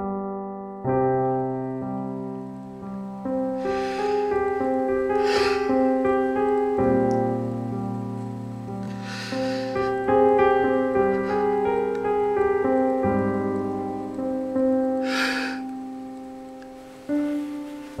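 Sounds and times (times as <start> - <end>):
slow piano music: 0.0 - 18.0
noisy breaths: 3.5 - 6.0, 8.8 - 10.1, 11.0 - 12.0, 15.0 - 15.7.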